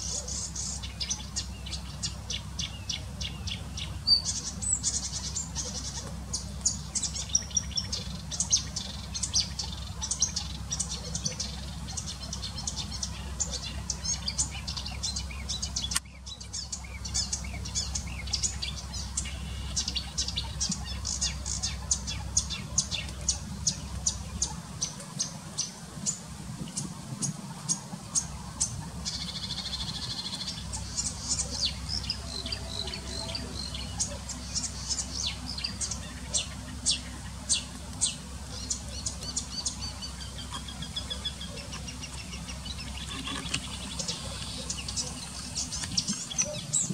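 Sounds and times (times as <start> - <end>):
low steady hum: 0.0 - 46.9
warbler singing: 0.0 - 46.9.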